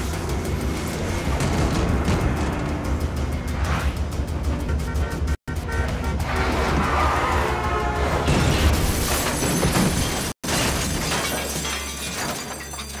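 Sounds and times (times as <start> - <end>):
film score music: 0.0 - 8.8
glass shattering: 8.3 - 13.0.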